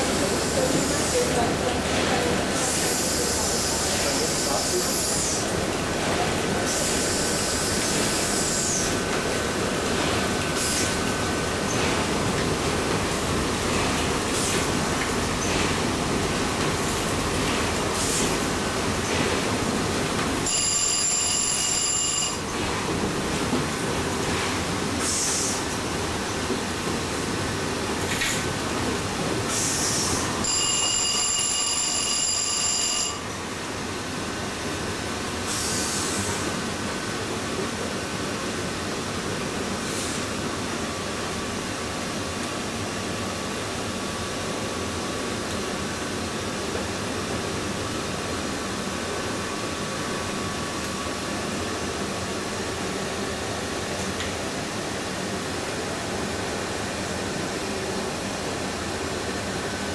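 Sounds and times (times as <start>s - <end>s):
ringing signal tone: 20.5s - 22.4s, 30.4s - 33.2s
short steam hisses: 25.0s - 25.6s, 35.5s - 36.4s.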